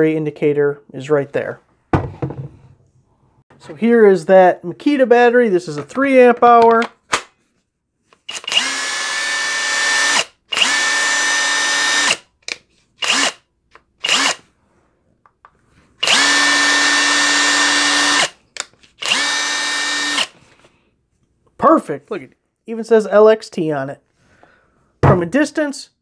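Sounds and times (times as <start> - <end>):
impact wrench motor whine: 8.3 - 12.2, 13.0 - 13.4, 14.0 - 14.4, 16.0 - 18.4, 19.0 - 20.4.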